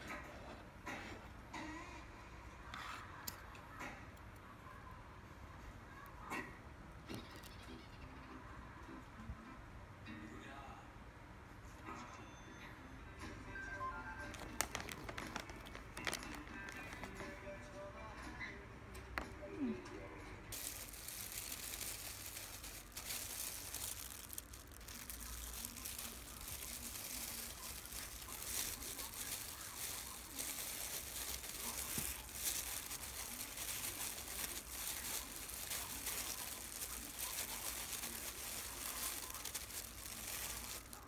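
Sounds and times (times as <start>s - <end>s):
plastic gloves crinkling: 14.2s - 17.4s, 20.5s - 41.0s.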